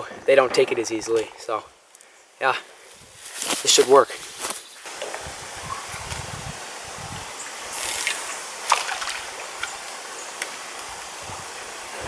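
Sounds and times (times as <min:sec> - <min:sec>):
lakeside ambience: 0:00.0 - 0:12.0
fishing line hissing: 0:03.2 - 0:11.2
wind on microphone: 0:05.0 - 0:08.3, 0:10.8 - 0:12.0.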